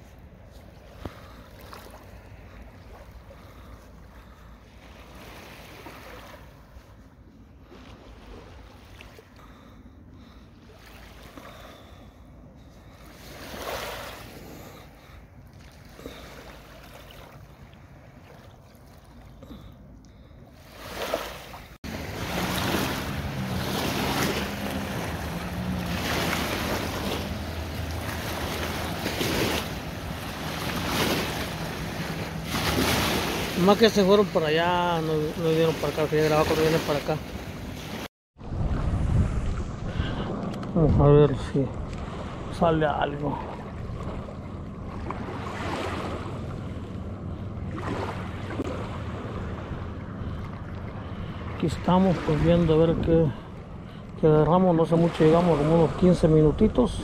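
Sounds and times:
small waves lapping: 0.0 - 57.0
wind on microphone: 38.4 - 50.7.

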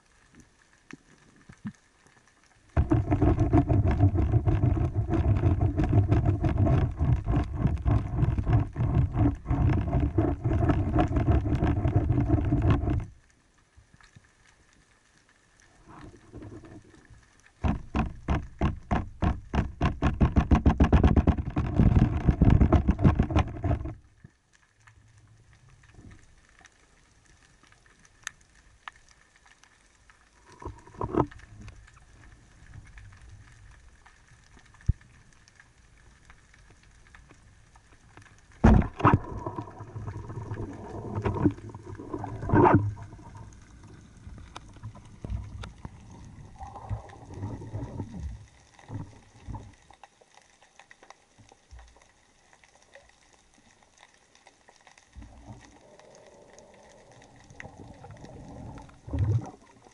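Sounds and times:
faint bubbling water: 0.0 - 20.3, 21.0 - 59.9
light clicks and knocks: 17.6 - 24.0.

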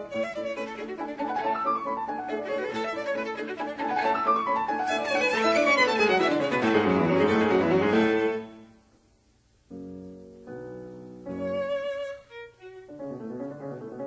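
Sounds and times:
violin background music: 0.0 - 8.6, 11.3 - 14.0.

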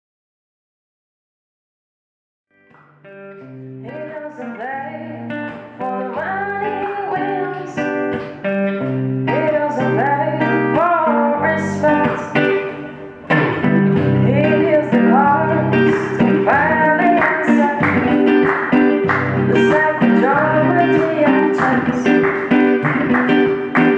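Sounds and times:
fingerpicked classical guitar: 2.7 - 23.9
woman singing: 3.8 - 8.2, 9.3 - 13.0, 14.2 - 23.8.

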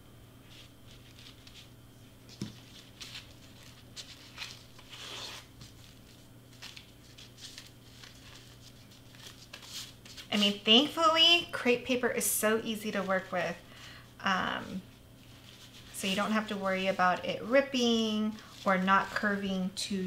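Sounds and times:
crepe paper rustling and crinkling: 0.4 - 11.3, 14.6 - 19.6.

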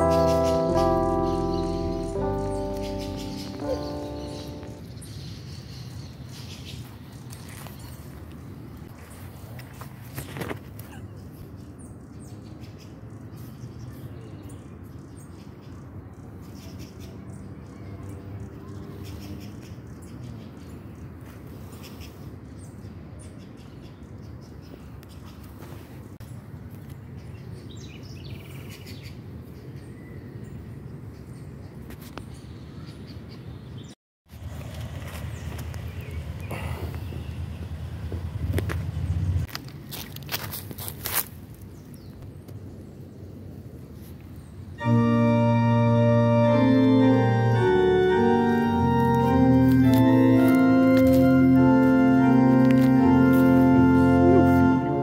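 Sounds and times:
slow organ chords: 0.0 - 5.0, 44.8 - 55.0
faint outdoor background noise: 0.0 - 55.0.

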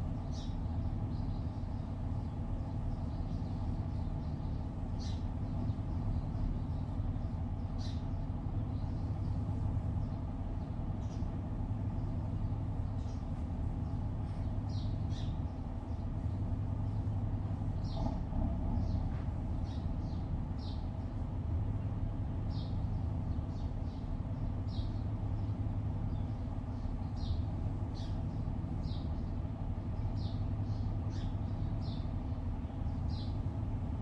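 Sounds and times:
road traffic rumble: 0.0 - 34.0
bird chirps: 12.9 - 16.4.

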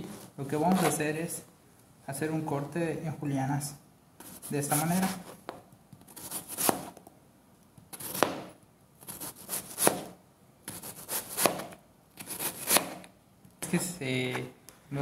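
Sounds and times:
knife slicing onion: 4.2 - 5.4, 6.0 - 7.0, 7.9 - 13.1.

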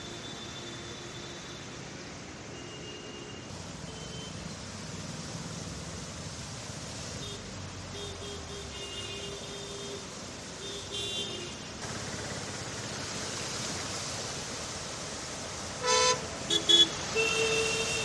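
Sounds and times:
tyres spraying floodwater: 0.0 - 18.0
faint car horns: 15.8 - 18.0
loud horn honks: 15.8 - 18.0.

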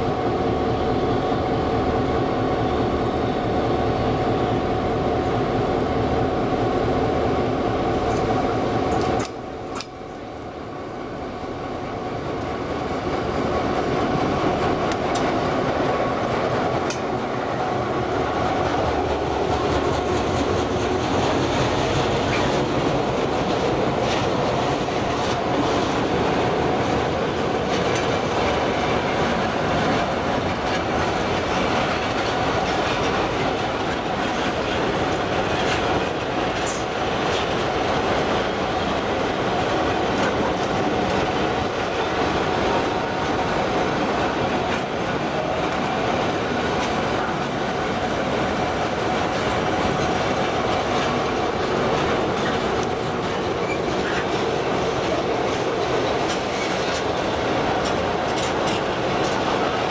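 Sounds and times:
freight train rumbling past: 0.0 - 59.9
wheels clacking over rail joints: 12.3 - 59.9.

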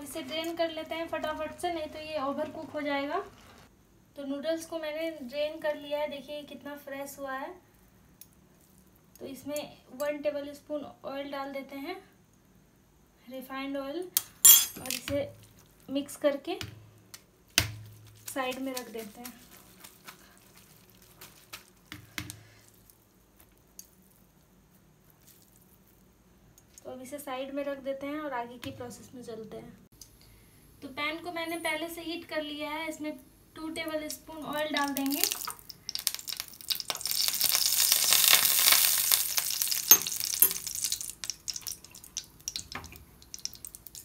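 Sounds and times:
small crackles: 17.1 - 26.9, 33.8 - 44.0
noodles squishing mixed by hand: 17.5 - 27.0, 33.8 - 44.0
hot oil sizzling in a frying pan: 33.8 - 44.0.

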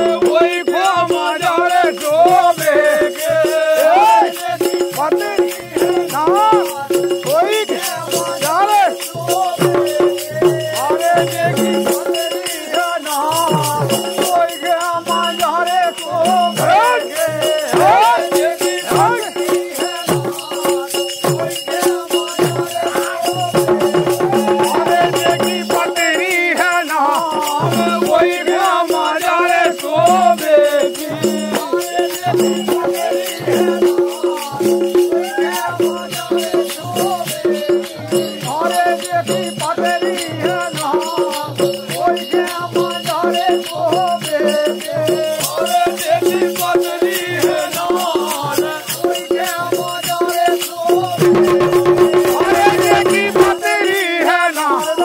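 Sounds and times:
metal jingles shaken: 1.0 - 55.0
barrel drums: 45.1 - 54.7.

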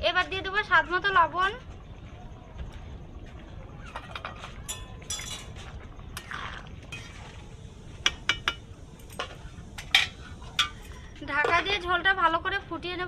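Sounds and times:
spoon clinking against pan: 4.7 - 5.6, 8.0 - 8.7.

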